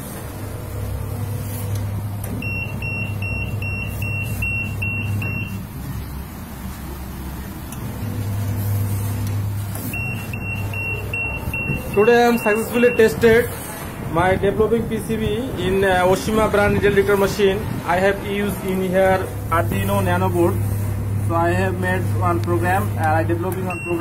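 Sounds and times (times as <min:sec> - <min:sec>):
low hum: 0:00.0 - 0:12.0, 0:13.6 - 0:24.0
high-pitched buzzer beeps: 0:02.3 - 0:05.6, 0:08.3 - 0:13.2, 0:23.7 - 0:24.0.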